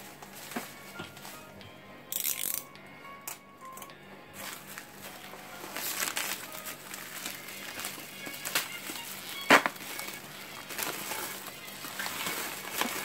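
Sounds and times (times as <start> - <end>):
background music: 0.0 - 13.0
plastic wrap crinkling: 4.4 - 13.0.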